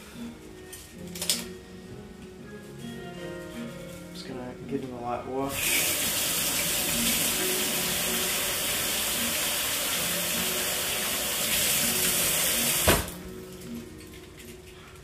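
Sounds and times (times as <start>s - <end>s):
tap water running into sink: 5.5s - 13.2s.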